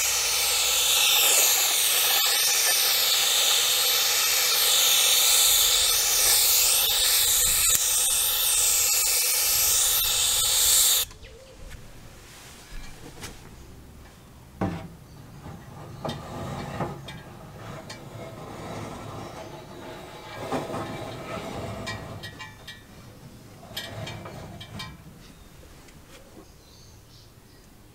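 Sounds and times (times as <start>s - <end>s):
paint spray gun hissing: 0.0s - 11.1s.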